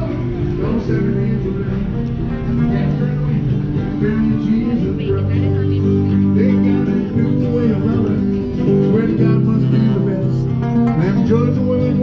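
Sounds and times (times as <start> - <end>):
guitar music: 0.0 - 12.0.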